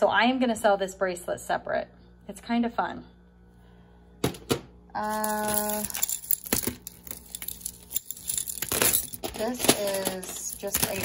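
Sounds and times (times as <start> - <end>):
jewelry clinking and rattling: 5.0 - 11.0.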